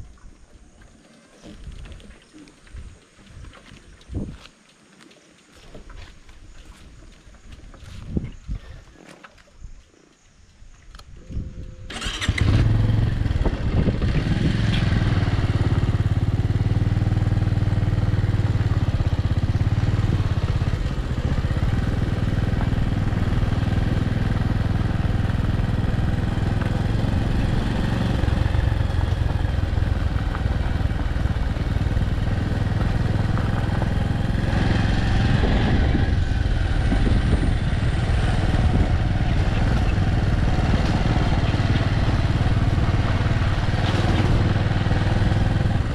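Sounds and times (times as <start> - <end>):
vehicle engine humming: 11.4 - 45.9
road noise: 11.5 - 45.9.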